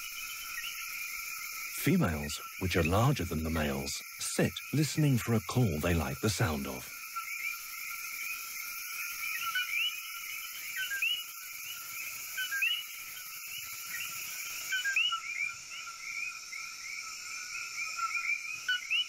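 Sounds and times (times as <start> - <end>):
steady high hiss: 0.0 - 15.0
frogs chorus calling: 0.0 - 19.0.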